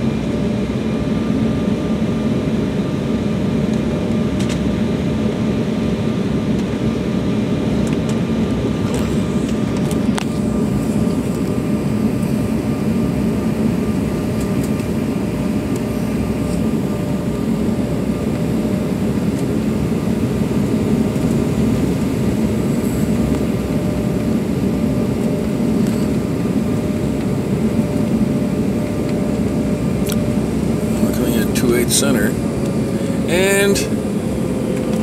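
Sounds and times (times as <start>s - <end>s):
jet engine hum: 0.0s - 35.0s
rushing airflow: 28.7s - 35.0s.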